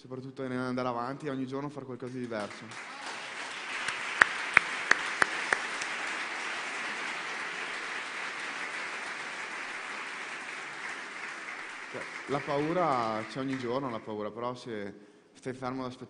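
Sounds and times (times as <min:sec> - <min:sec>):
sharp claps close by: 0:02.1 - 0:14.0
audience applauding: 0:02.3 - 0:14.1.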